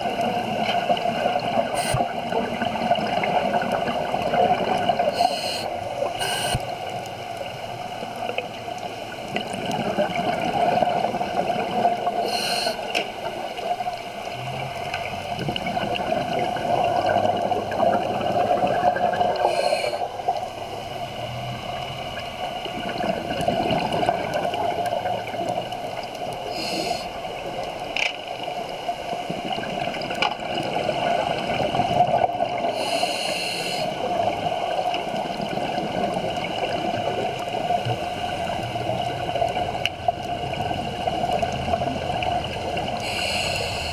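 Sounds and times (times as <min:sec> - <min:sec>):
bubbling exhales: 0:00.0 - 0:06.9, 0:09.2 - 0:27.5
steady water noise: 0:00.0 - 0:43.9
regulator breathing hiss: 0:01.7 - 0:02.3, 0:05.1 - 0:06.9, 0:12.2 - 0:13.2, 0:19.4 - 0:22.1, 0:26.4 - 0:27.3, 0:32.7 - 0:34.1, 0:43.0 - 0:43.9.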